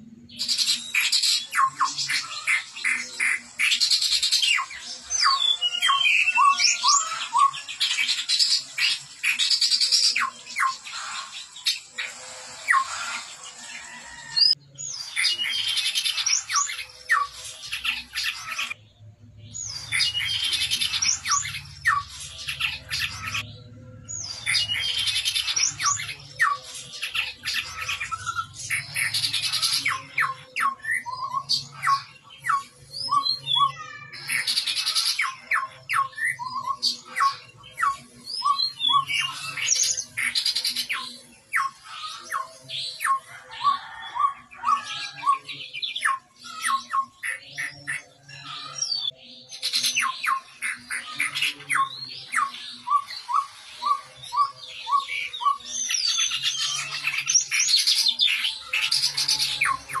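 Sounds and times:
bird harsh raspy calls: 0:24.3 - 0:37.4.

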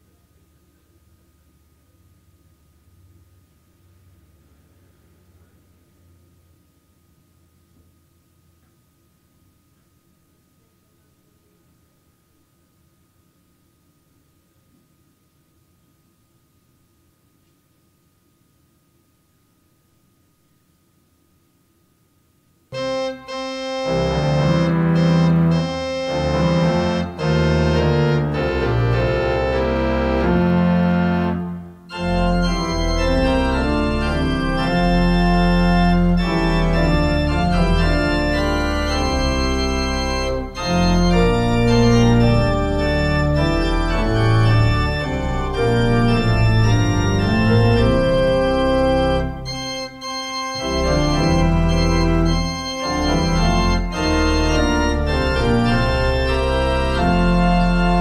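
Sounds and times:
organ playing held chords: 0:22.7 - 0:58.0.

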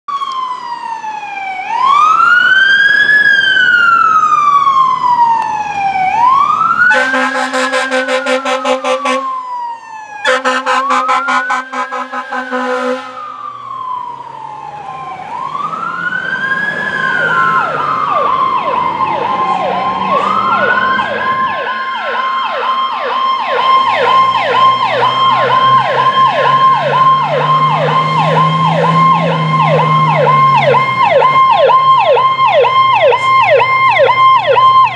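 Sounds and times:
fast siren yelp: 0:00.1 - 0:34.9
fire engine siren wailing: 0:00.1 - 0:34.9
truck engine drone: 0:00.1 - 0:34.9
horn blasts: 0:06.9 - 0:09.4, 0:10.2 - 0:13.4.

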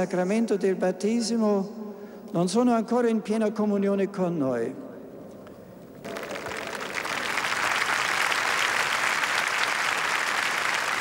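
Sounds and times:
large crowd applauding: 0:06.0 - 0:11.0.

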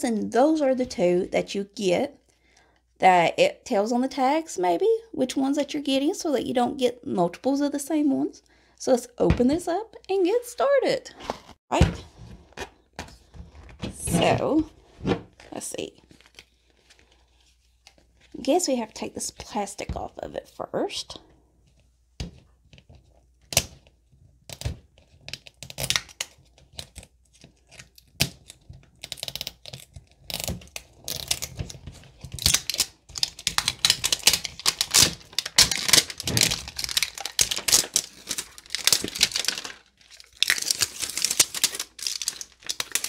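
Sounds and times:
plastic wrap crinkling and tearing: 0:15.3 - 0:18.3, 0:25.0 - 0:43.0.

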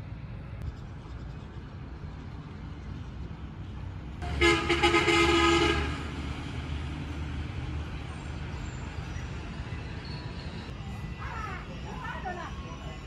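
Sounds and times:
low rumble of train: 0:00.0 - 0:13.0
train horn blast: 0:04.2 - 0:06.1.

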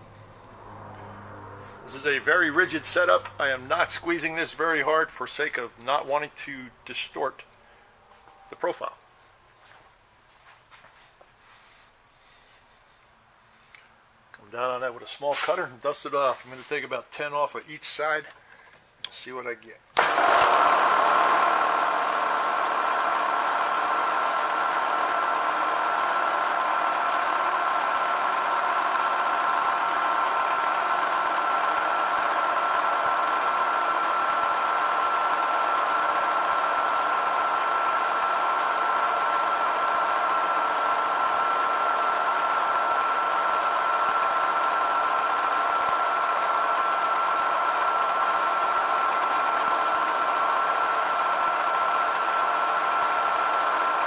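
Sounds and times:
milling machine whine: 0:20.0 - 0:54.0.

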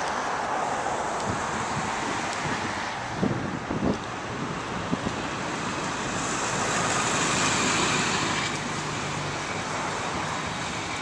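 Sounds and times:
vehicle passing: 0:04.7 - 0:11.0.

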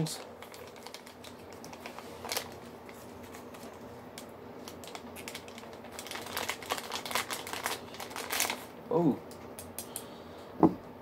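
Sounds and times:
plastic bag crinkling: 0:00.0 - 0:08.7.

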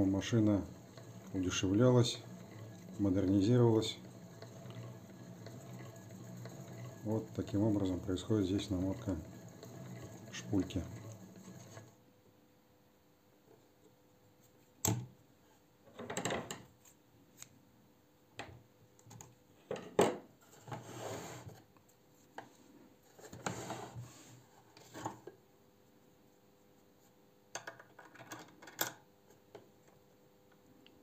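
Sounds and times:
rubbing and scraping: 0:00.0 - 0:12.0, 0:20.4 - 0:22.3.

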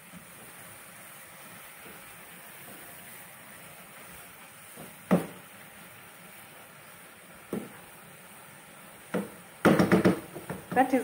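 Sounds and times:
wooden spoon knocking on a pot: 0:05.0 - 0:05.4, 0:07.5 - 0:07.8, 0:09.1 - 0:11.0.

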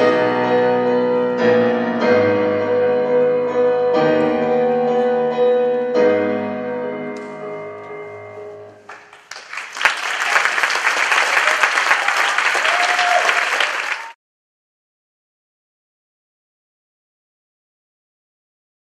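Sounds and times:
audience applause: 0:08.9 - 0:14.2
audience cheering: 0:09.3 - 0:14.2.

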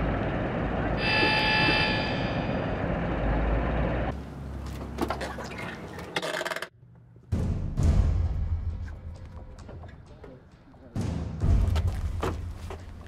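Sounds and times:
road traffic noise: 0:00.0 - 0:07.1
high squeal: 0:01.0 - 0:03.2.

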